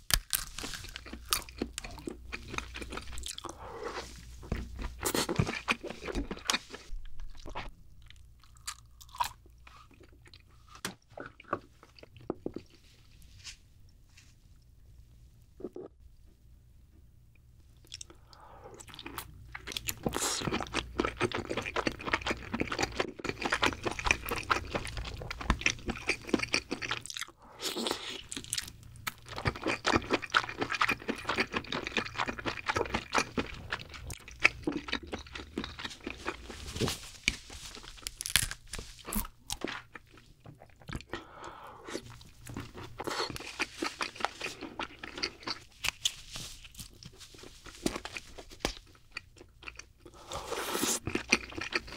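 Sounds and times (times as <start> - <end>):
close wet chewing: 29.3 - 36.6, 41.9 - 46.2, 46.8 - 51.9.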